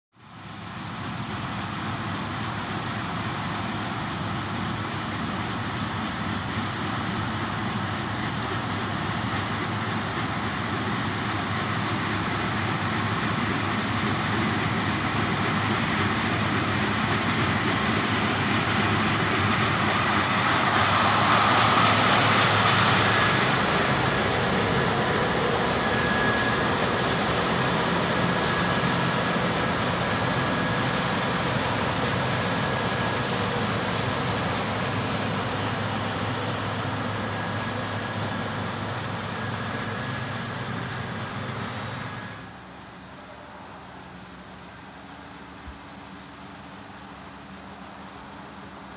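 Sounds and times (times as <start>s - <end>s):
combine harvester running: 0.2s - 48.9s
faint high whine: 12.7s - 48.9s.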